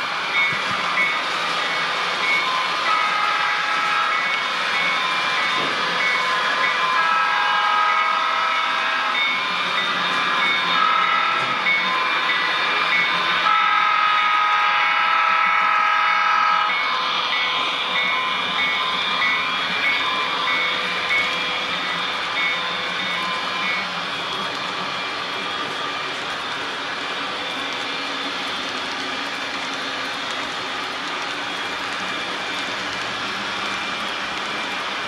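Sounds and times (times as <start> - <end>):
train horn blasts: 2.8 - 4.3, 6.3 - 9.5, 10.7 - 11.6, 13.4 - 16.8.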